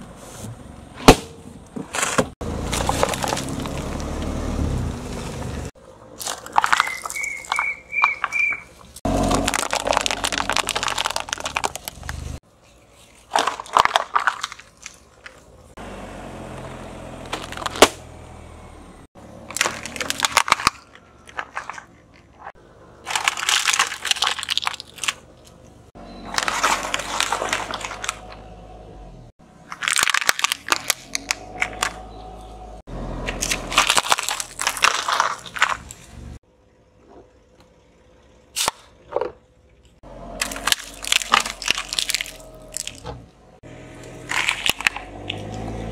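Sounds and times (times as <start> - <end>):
hard candy cracking and crunching: 6.2 - 12.4, 13.3 - 15.5, 19.4 - 25.6, 26.3 - 28.4, 29.7 - 32.0, 33.3 - 36.0, 40.4 - 43.1, 44.0 - 45.6
plastic bottles crackling flat: 6.2 - 15.5, 19.4 - 25.6, 26.3 - 28.4, 29.6 - 32.0, 33.3 - 36.1, 40.4 - 43.1, 44.0 - 45.7.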